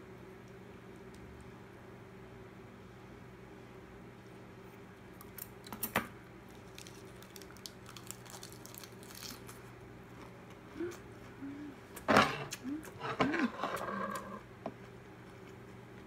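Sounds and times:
low steady hum: 0.0s - 16.0s
crisp chewing: 6.4s - 16.0s.

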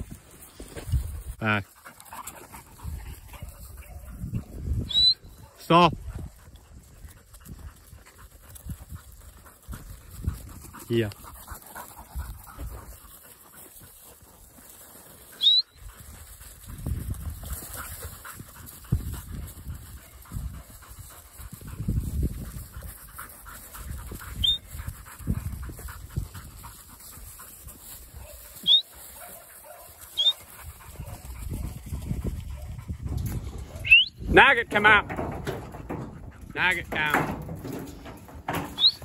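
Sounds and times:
wind rumble on microphone: 2.6s - 13.1s, 15.8s - 28.3s, 30.5s - 34.4s
short sharp rising whistles: 15.4s - 15.7s.

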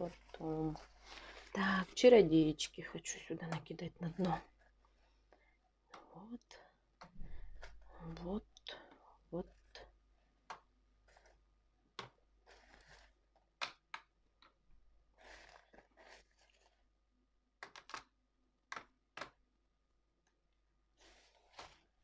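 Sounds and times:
dry clay snapping: 17.6s - 18.1s, 18.7s - 19.4s.

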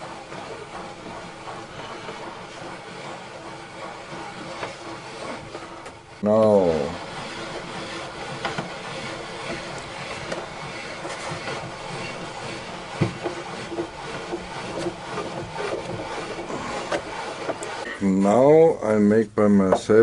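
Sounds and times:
plywood parts creaking: 7.0s - 17.9s.

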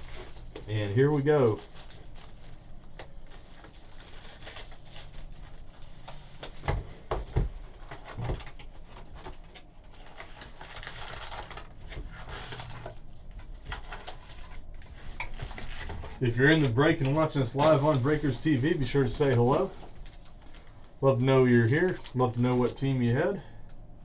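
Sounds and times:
plastic and foil crinkling: 0.0s - 6.7s, 7.8s - 23.0s.

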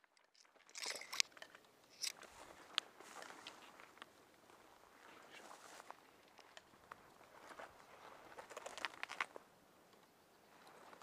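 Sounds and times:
footsteps in dry grass: 2.0s - 9.4s.

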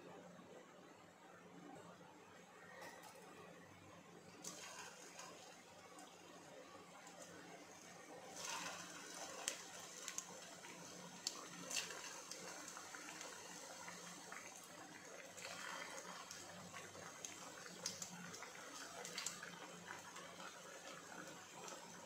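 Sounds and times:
food deep-frying in oil: 4.2s - 22.0s
oil popping and crackling: 4.3s - 6.2s, 6.9s - 22.0s.

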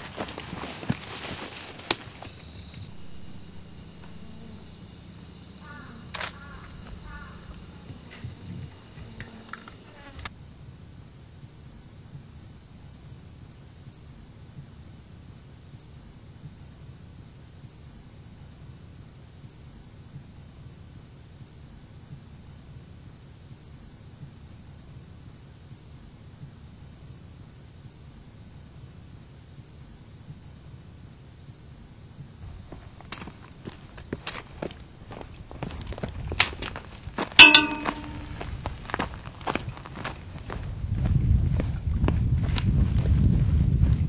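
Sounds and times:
footsteps on gravel: 0.0s - 3.1s
insects trilling: 0.0s - 13.8s, 17.0s - 40.6s
low rumble: 2.3s - 9.2s.

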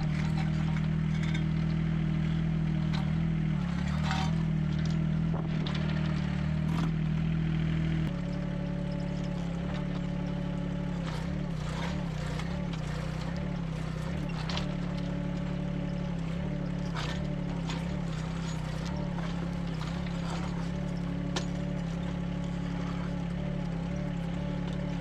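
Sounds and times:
excavator engine under load: 0.0s - 25.0s
excavator arm knocks and scrapes: 2.8s - 7.0s, 11.3s - 15.4s.

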